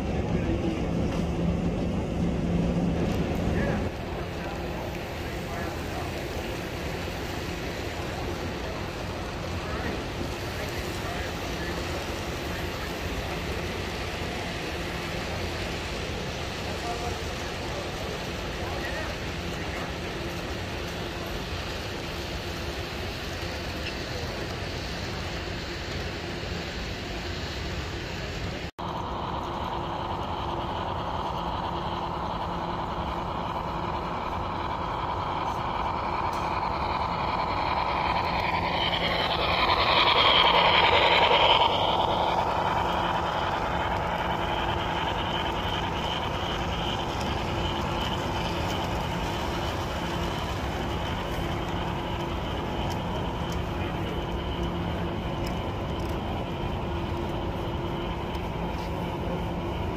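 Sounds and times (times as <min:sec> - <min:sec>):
model train humming: 0:00.0 - 0:59.9
gliding tones: 0:28.9 - 0:59.9.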